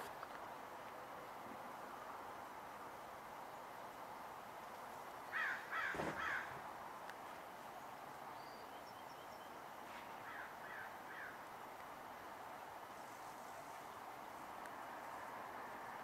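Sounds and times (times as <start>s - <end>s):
crow harsh calls: 5.3s - 6.6s, 10.2s - 11.4s.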